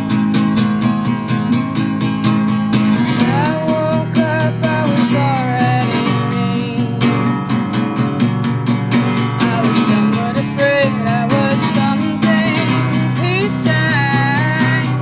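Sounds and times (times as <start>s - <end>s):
acoustic guitar strumming: 0.0s - 15.0s
woman singing: 3.0s - 7.6s, 9.0s - 15.0s.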